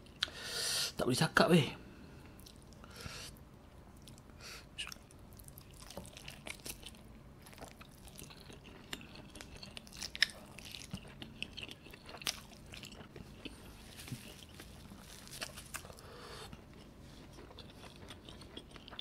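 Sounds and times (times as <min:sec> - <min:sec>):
wet chewing and lip smacks: 0:03.9 - 0:19.0.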